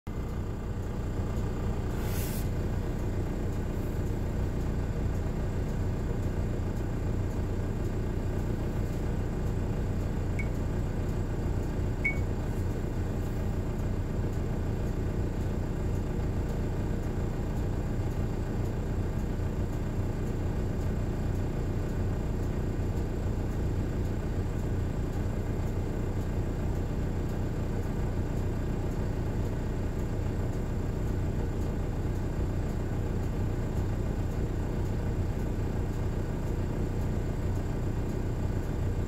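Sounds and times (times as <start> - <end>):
diesel locomotive rumbling: 0.1 - 14.2.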